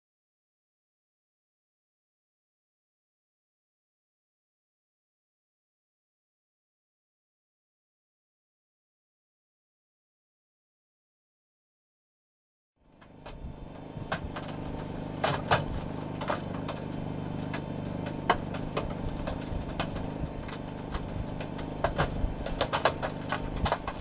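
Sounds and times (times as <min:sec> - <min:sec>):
low engine hum: 0:12.8 - 0:24.0
sharp clicks and cracks: 0:13.0 - 0:24.0.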